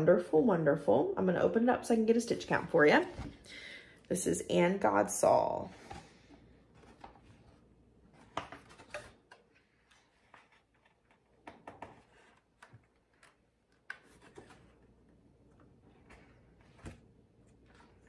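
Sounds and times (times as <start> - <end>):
paper rustling and tapping: 8.1 - 14.8.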